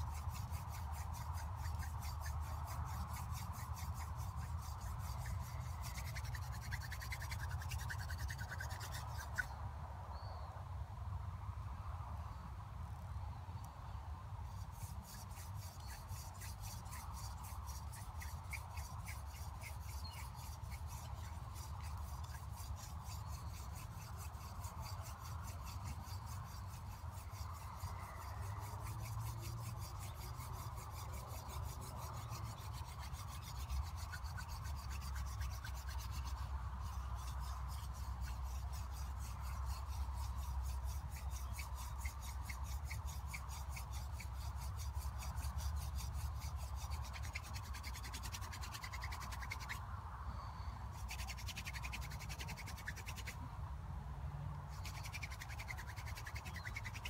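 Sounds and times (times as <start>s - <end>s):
wooden spindle rasping on hearth board: 0.0s - 9.4s, 14.5s - 49.8s.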